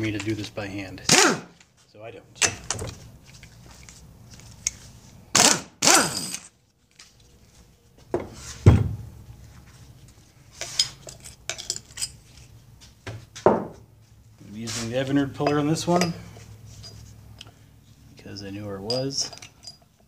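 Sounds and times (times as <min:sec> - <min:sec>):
air impact wrench hammering: 0:01.1 - 0:01.6, 0:05.3 - 0:06.5
metal tools clinking: 0:10.5 - 0:12.5, 0:15.3 - 0:17.1, 0:18.7 - 0:20.0
knock: 0:13.5 - 0:13.8.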